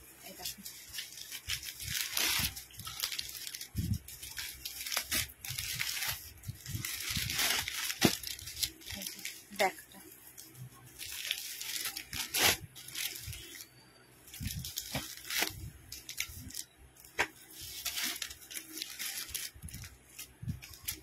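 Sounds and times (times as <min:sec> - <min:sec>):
plastic packets crinkling: 0:00.0 - 0:21.0.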